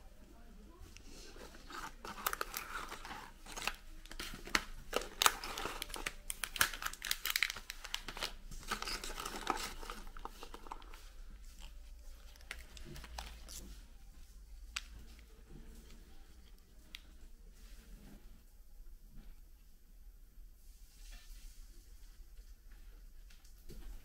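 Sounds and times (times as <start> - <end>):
plastic wrappers crinkling: 1.1 - 13.7.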